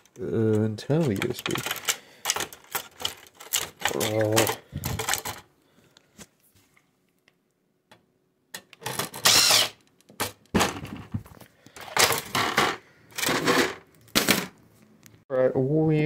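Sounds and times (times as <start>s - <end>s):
plastic scraping and rattling: 0.0s - 5.5s, 10.1s - 14.6s.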